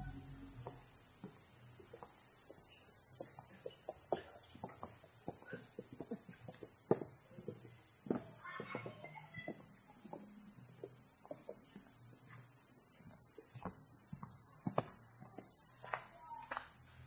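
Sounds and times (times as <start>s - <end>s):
insect chorus buzzing: 0.0s - 17.0s.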